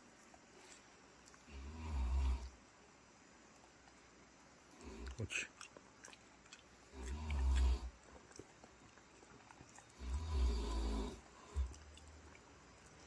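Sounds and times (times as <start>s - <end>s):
snore-like breathing: 6.9s - 7.9s, 9.9s - 11.8s.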